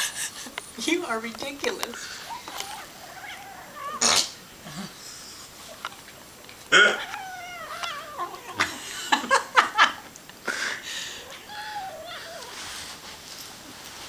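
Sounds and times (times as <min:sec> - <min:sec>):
kitten growling: 0:02.2 - 0:05.9, 0:06.7 - 0:08.8.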